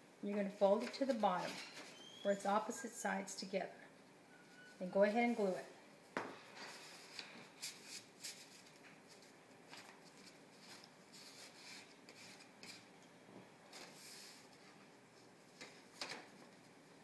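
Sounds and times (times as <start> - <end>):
paper rustling and scraping: 6.6 - 12.9, 13.7 - 14.7.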